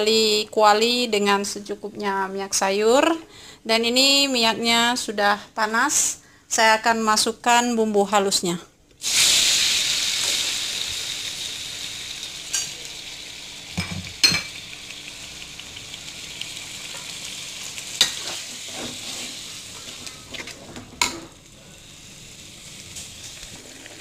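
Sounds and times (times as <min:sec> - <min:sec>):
paste sizzling in hot oil: 0:09.0 - 0:20.5
spatula scraping a wok: 0:18.0 - 0:21.2.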